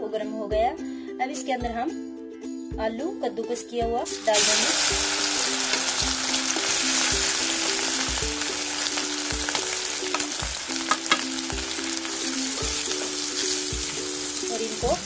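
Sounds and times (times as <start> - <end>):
background music with beat: 3.8 - 15.0
potato sizzling in hot fat: 4.1 - 15.0
utensils clicking against pan: 9.5 - 11.4.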